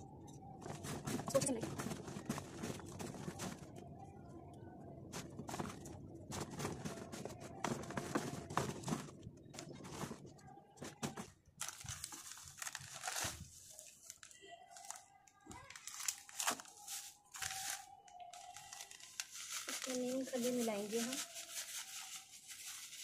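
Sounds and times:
plastic bag crinkling: 5.1s - 23.0s.

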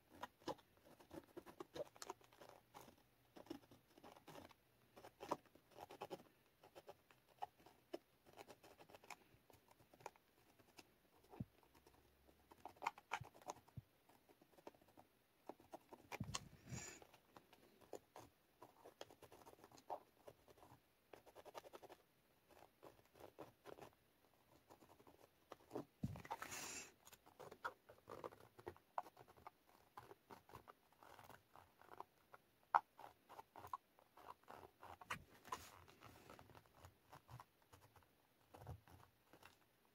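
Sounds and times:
marker scratching on paper: 0.1s - 39.5s
rustling: 21.5s - 39.7s.

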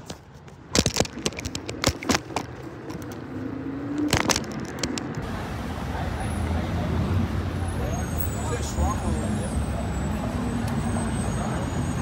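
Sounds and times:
phone handling clicks and bumps: 0.0s - 3.2s, 4.0s - 5.2s
low traffic hum: 0.0s - 12.0s.

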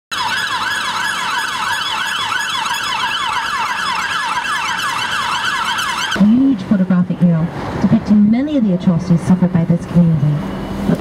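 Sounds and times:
ambulance siren yelping: 0.1s - 6.6s.

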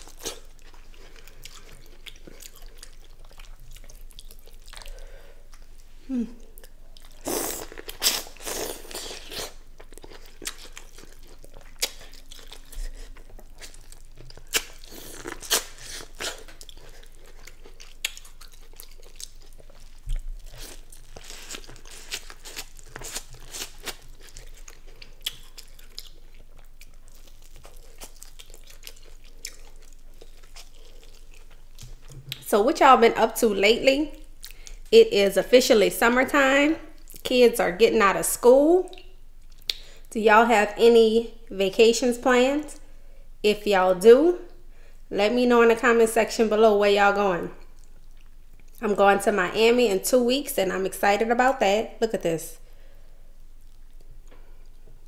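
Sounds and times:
person chewing and crunching: 0.0s - 5.8s, 6.4s - 32.4s.

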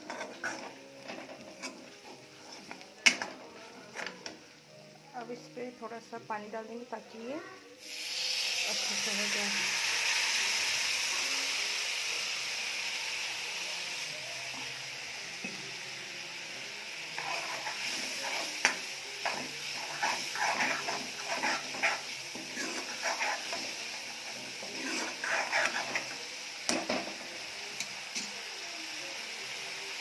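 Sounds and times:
metal ladle scraping pan: 0.0s - 4.2s, 17.2s - 26.2s
frying masala hissing: 0.0s - 30.0s.

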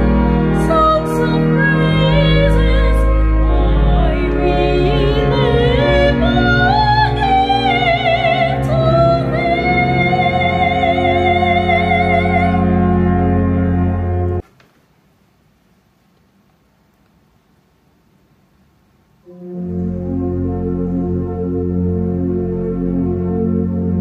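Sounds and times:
church organ chords: 0.0s - 14.4s, 19.2s - 24.0s
soprano singing with vibrato: 0.5s - 13.1s.

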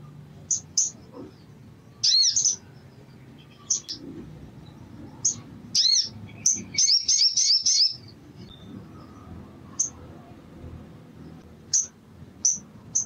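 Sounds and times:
bird chips and chirps: 0.4s - 8.8s, 11.7s - 13.0s.

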